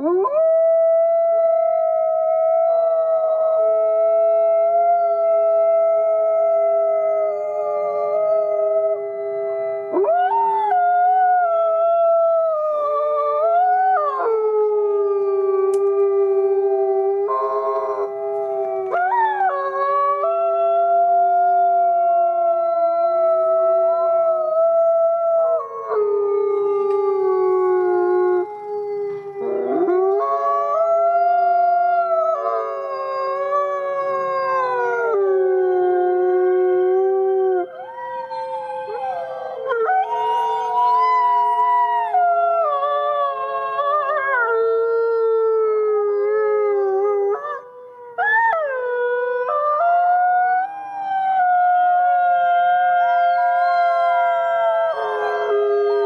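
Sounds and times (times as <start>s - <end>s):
wolves howling: 0.0s - 56.0s.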